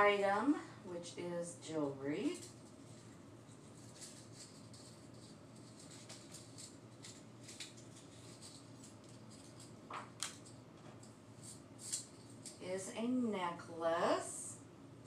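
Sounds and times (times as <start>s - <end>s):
packaging crinkling: 2.4s - 10.7s.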